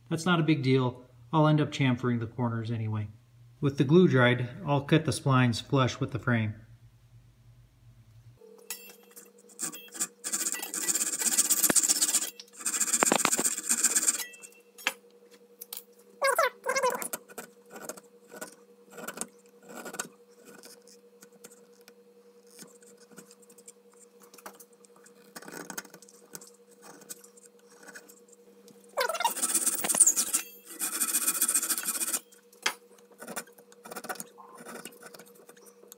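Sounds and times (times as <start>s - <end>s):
steady low hum: 0.0s - 35.9s
hand saw sawing wood: 29.3s - 32.2s.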